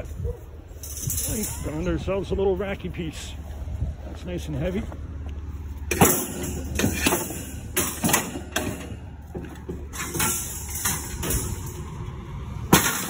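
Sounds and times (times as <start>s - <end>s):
metal shelving clanking: 0.7s - 2.1s, 5.9s - 13.0s.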